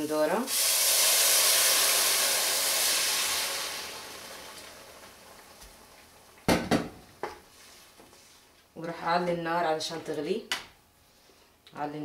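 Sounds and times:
juice hissing in hot oil: 0.0 - 6.5.

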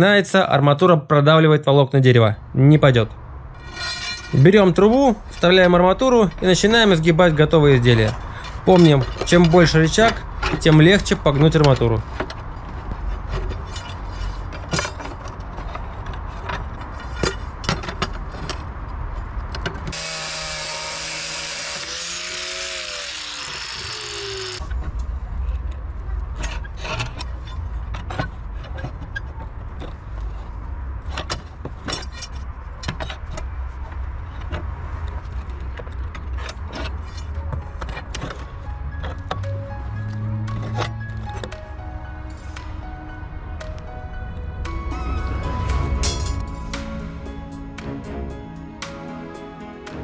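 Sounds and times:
metallic clicks and knocks: 7.8 - 20.0
low rumble: 41.1 - 48.9.

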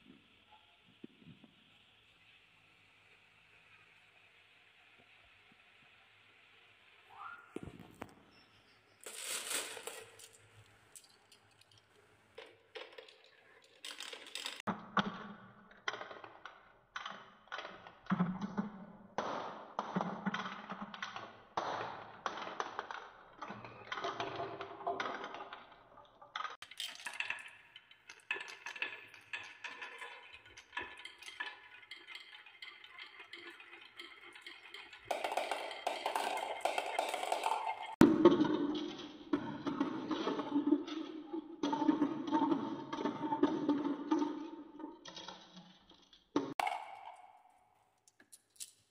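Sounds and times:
marbles rolling on wooden track: 9.0 - 14.7, 19.2 - 47.5.

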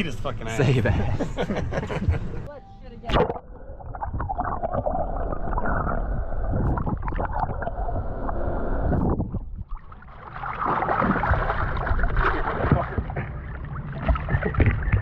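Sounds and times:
underwater rushing and gurgling: 3.1 - 15.0
water splashing: 3.1 - 15.0.

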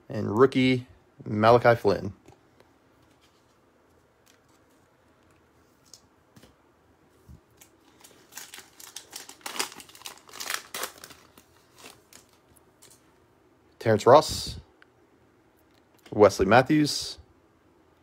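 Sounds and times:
foil wrapper crinkling: 7.5 - 13.0.

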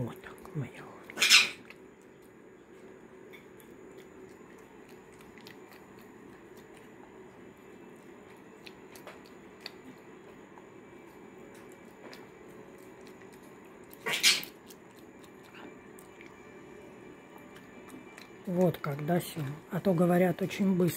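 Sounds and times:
monkey chewing wet mouth clicks: 0.3 - 10.7, 11.5 - 16.4.

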